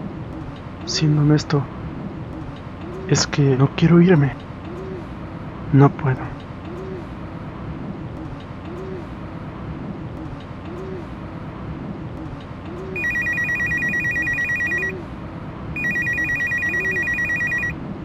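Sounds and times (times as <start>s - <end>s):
phone ringing with electronic trill: 13.0s - 15.0s, 15.8s - 17.8s.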